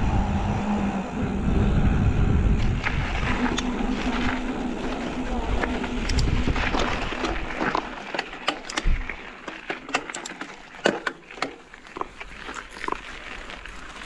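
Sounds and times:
wind rush and rolling noise: 0:00.0 - 0:09.2
bike tyres clicking on rough track: 0:00.0 - 0:14.0.

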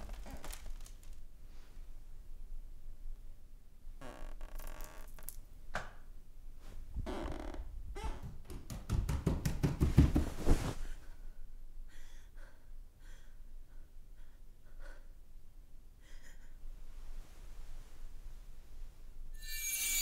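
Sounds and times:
rapid knocks and thuds: 0:08.2 - 0:10.6
soft breaths and sighs: 0:10.3 - 0:19.2.

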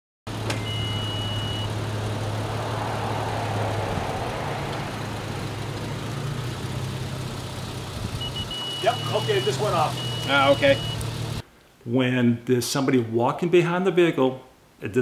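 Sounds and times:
truck engine at low revs: 0:00.3 - 0:11.4
high electronic beep: 0:00.6 - 0:01.7, 0:08.2 - 0:11.0.

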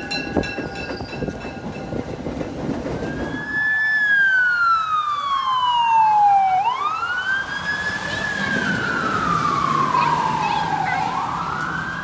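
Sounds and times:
fire truck siren wailing: 0:03.0 - 0:12.0.

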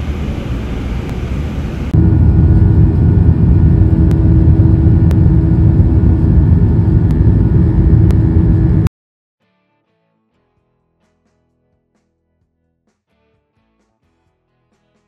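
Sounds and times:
faint hum: 0:00.0 - 0:08.9
jet engines and airflow rumble: 0:00.0 - 0:08.9.

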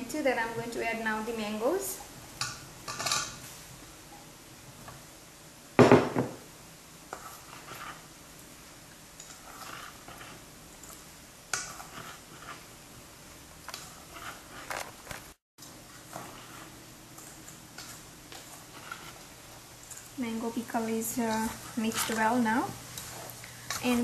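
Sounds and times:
spoon scraping a steel bowl: 0:07.1 - 0:08.0, 0:09.2 - 0:10.4, 0:11.6 - 0:12.7, 0:13.7 - 0:14.8, 0:17.8 - 0:19.2, 0:23.0 - 0:24.0.

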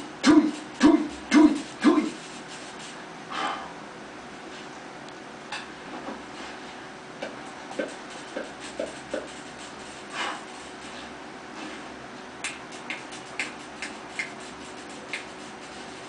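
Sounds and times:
faint hum: 0:00.0 - 0:16.0
finger snaps: 0:12.4 - 0:14.4, 0:15.1 - 0:15.3.

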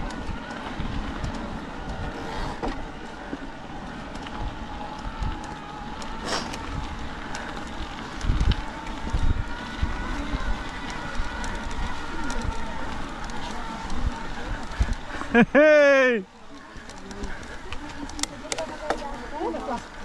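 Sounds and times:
wind noise: 0:00.0 - 0:15.8
bike rolling on dirt trail: 0:00.0 - 0:20.0.

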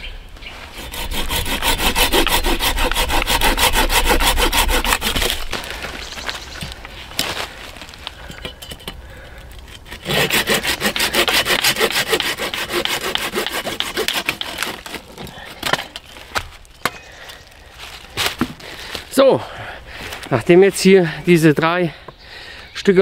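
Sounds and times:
pruning saw cutting branch: 0:00.7 - 0:05.6, 0:09.7 - 0:16.1.

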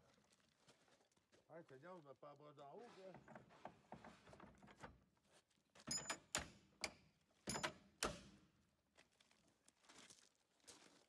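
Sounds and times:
sharp metallic knocks: 0:05.9 - 0:08.2.

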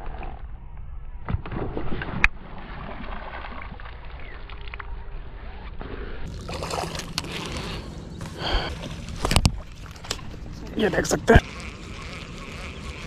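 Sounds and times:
water sloshing and rippling: 0:01.2 - 0:10.8.

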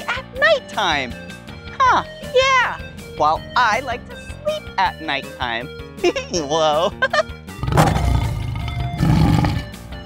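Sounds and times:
light background music: 0:00.0 - 0:10.0
lion roaring: 0:07.6 - 0:09.8.

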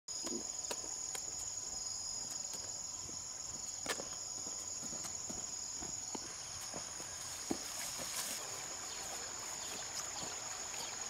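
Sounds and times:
insects buzzing: 0:00.1 - 0:11.0.

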